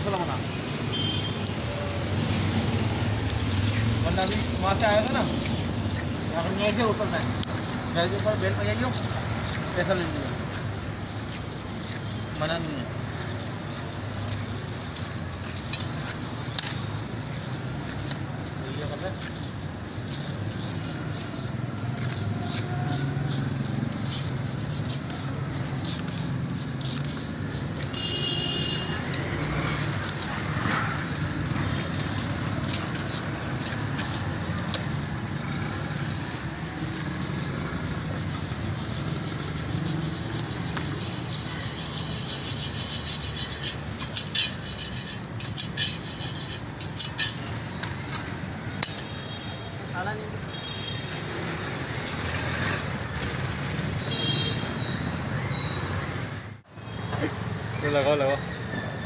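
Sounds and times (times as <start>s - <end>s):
street traffic rumble: 0.0s - 59.0s
metal stirrer scraping sand: 22.5s - 48.3s.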